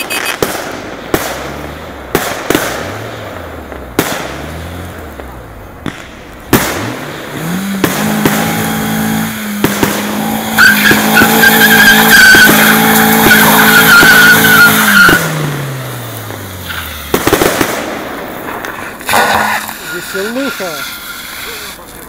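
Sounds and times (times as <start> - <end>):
car engine revving hard: 1.2 - 5.5, 6.5 - 18.2
tyres squealing: 10.4 - 15.5, 18.7 - 22.0.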